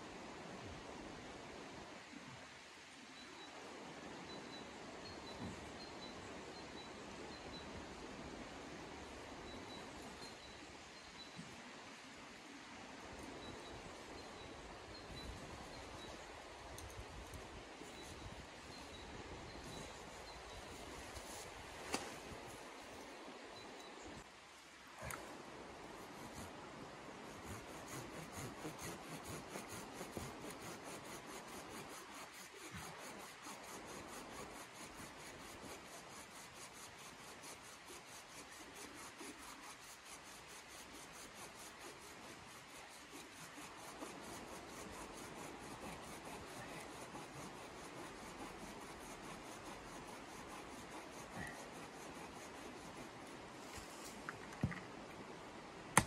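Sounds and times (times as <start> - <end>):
tool scraping wooden pole: 27.4 - 54.8.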